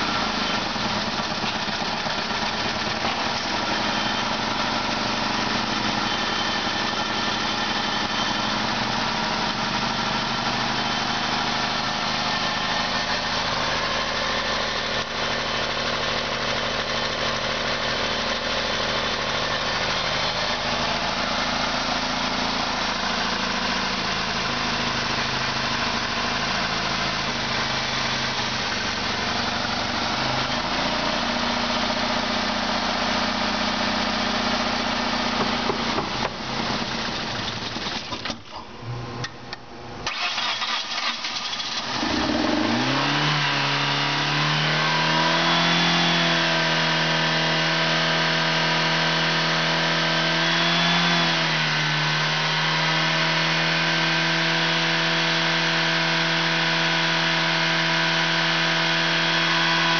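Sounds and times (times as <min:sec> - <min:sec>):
car engine idling: 0:00.0 - 0:45.4.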